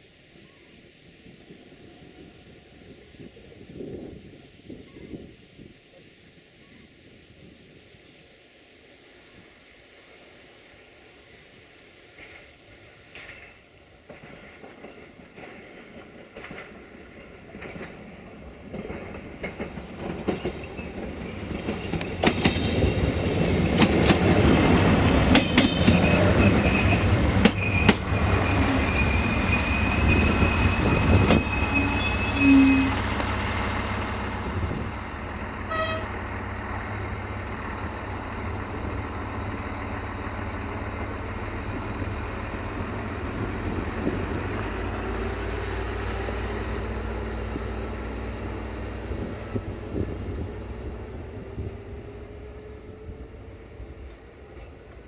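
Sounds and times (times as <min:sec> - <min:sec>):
train wheels clicking over rail joints: 0:12.1 - 0:51.9
train horn toot: 0:26.0 - 0:33.2, 0:35.6 - 0:36.3.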